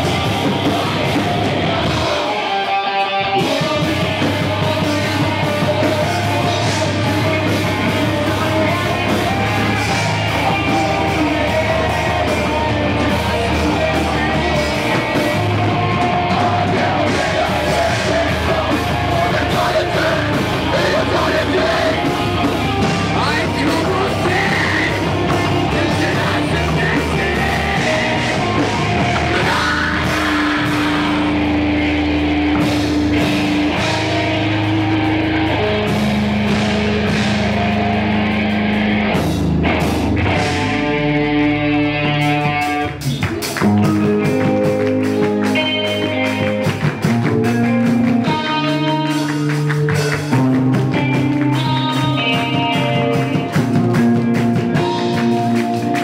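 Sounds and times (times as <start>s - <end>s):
singer's vocals: 0.0s - 31.6s
metalcore band playing live: 0.0s - 56.0s.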